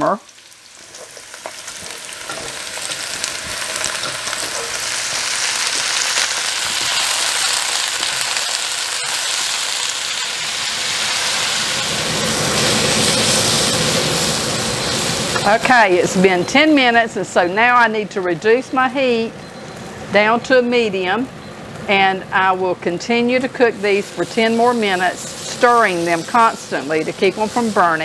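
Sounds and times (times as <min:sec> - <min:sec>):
onions sizzling in oil: 0:00.0 - 0:28.0
spatula stirring: 0:00.9 - 0:07.1.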